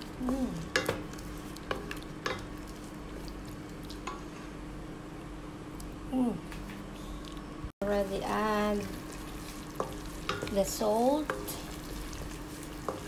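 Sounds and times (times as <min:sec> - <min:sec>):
sauce simmering with sizzle: 0:00.0 - 0:04.4, 0:07.8 - 0:13.0.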